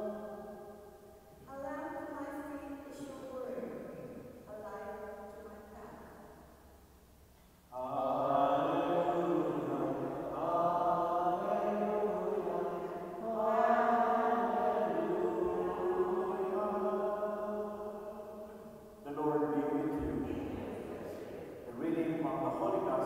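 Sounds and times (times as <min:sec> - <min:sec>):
man chanting: 0:07.7 - 0:12.4, 0:19.0 - 0:20.9, 0:21.6 - 0:23.0.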